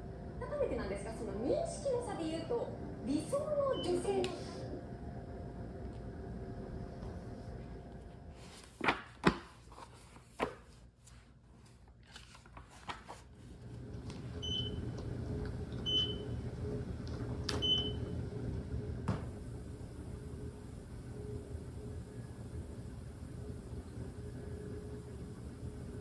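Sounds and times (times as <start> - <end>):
low steady hum: 0.0 - 26.0
pages flipping: 8.4 - 14.2.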